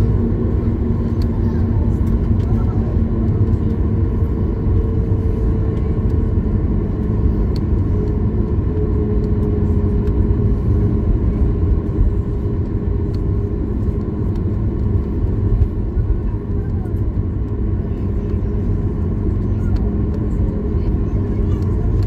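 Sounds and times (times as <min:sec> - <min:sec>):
aircraft rolling on taxiway: 0:00.0 - 0:22.0
jet engines low rumble: 0:00.0 - 0:22.0.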